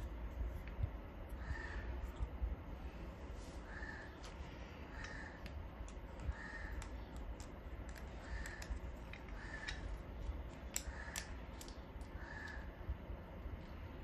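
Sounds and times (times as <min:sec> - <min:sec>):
bird calling: 0:03.6 - 0:05.5, 0:06.2 - 0:07.1, 0:12.2 - 0:12.8.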